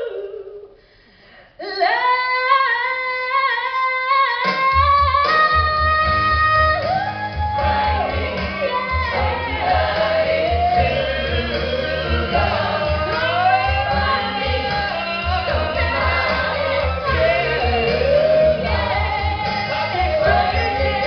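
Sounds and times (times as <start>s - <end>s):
rock band with pulsing bass: 5.6s - 21.0s
voices singing long notes: 5.6s - 21.0s.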